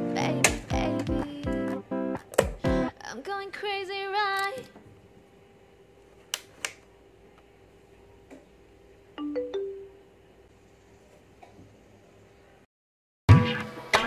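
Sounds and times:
pop song with sung vibrato note: 0:00.0 - 0:04.3.

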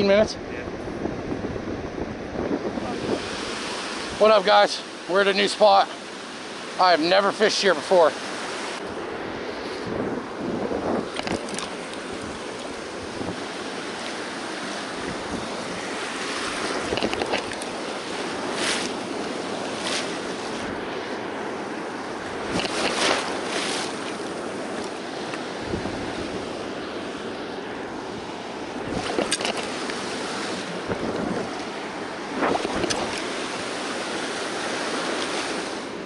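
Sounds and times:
wind buffeting microphone: 0:00.0 - 0:06.8, 0:07.7 - 0:36.0
ocean surf breaking: 0:00.0 - 0:36.0.

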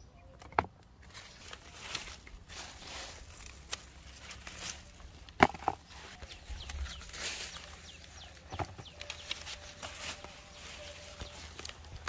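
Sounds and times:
chickens clucking and peeping: 0:04.8 - 0:12.0.

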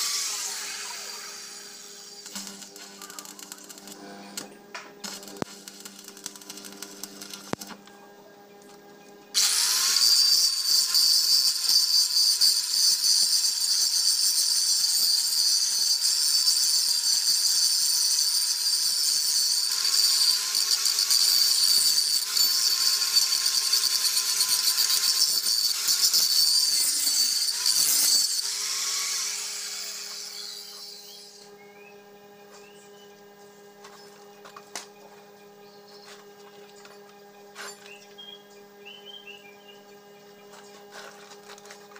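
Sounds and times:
angle grinder on metal: 0:00.0 - 0:07.8, 0:09.4 - 0:31.5.

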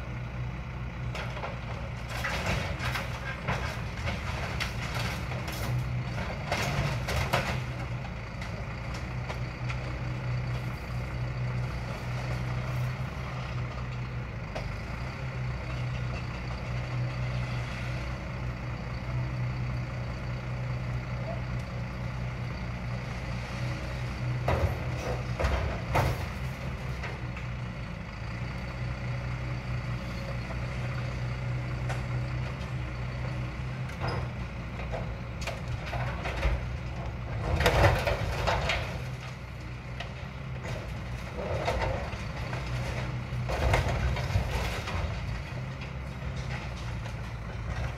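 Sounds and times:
truck engine running: 0:00.0 - 0:47.9.

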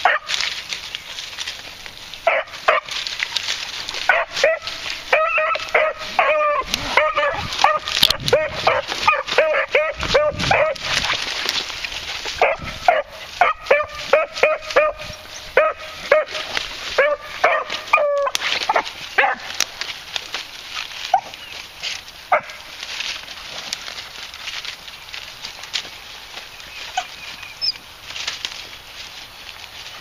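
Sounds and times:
rustling brush: 0:00.0 - 0:30.0
dogs yelping: 0:02.2 - 0:11.4, 0:12.2 - 0:19.6, 0:21.0 - 0:21.7, 0:26.8 - 0:27.8.

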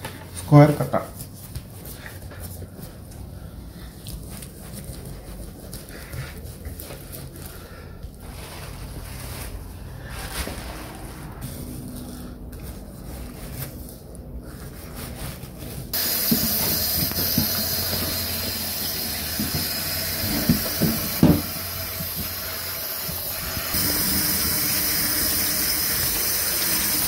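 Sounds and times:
tap water running into sink: 0:16.0 - 0:27.0.

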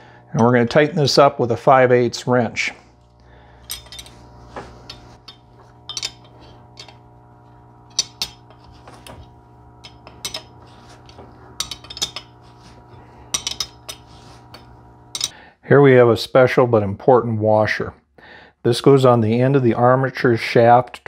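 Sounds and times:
wrench clicking on metal nut: 0:04.9 - 0:07.0, 0:07.9 - 0:08.6, 0:09.8 - 0:10.5, 0:11.6 - 0:12.3, 0:13.3 - 0:14.0, 0:15.1 - 0:15.3.

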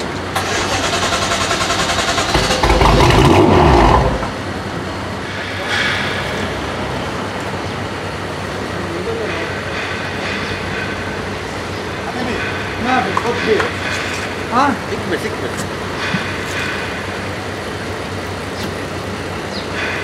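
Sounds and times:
engine starter cranking: 0:00.3 - 0:04.3
engine firing surge: 0:00.3 - 0:04.5.

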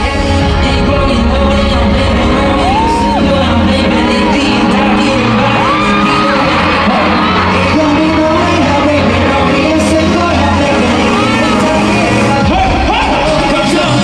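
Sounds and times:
live pop song with heavy bass: 0:00.0 - 0:14.0.

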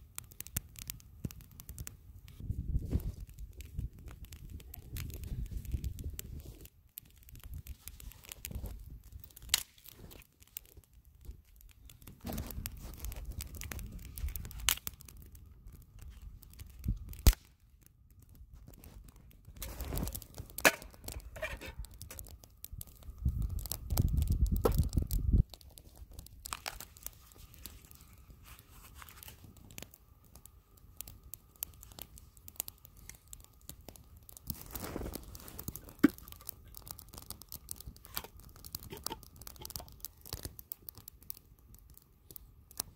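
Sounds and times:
twig fire crackling: 0:00.0 - 0:42.9
footsteps crunching in snow: 0:34.6 - 0:35.6.

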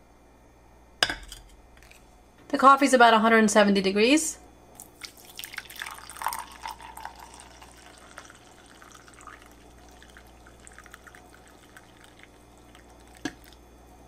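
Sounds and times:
coffee pouring into mug: 0:04.8 - 0:13.6.

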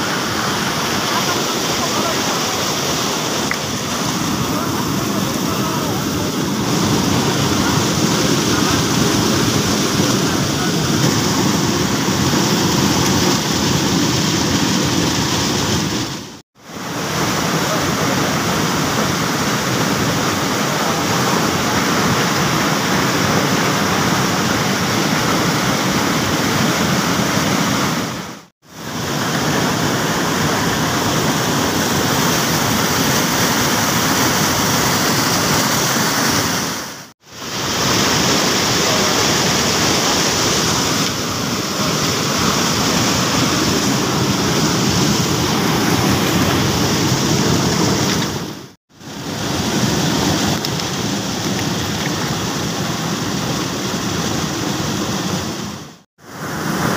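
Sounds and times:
water rushing over rocks: 0:00.0 - 0:56.9.

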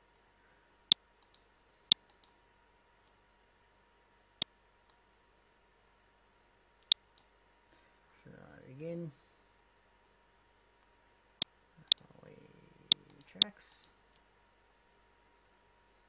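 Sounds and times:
faint ticks: 0:01.2 - 0:02.4.

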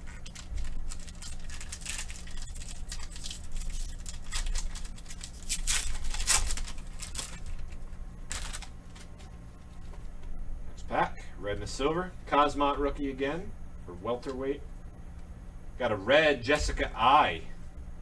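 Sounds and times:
foil wrapper crinkling and tearing: 0:00.0 - 0:09.2.

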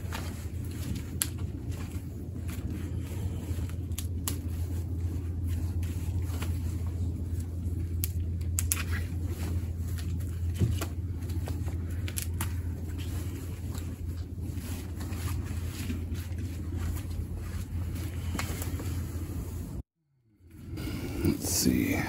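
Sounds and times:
roots crackling and snapping: 0:00.0 - 0:04.8, 0:05.4 - 0:17.3
steady low rumble: 0:00.0 - 0:22.0.

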